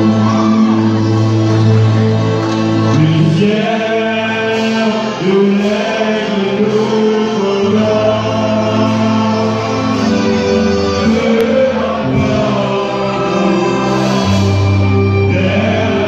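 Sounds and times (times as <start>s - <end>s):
male vocal group singing gospel: 2.8s - 16.0s.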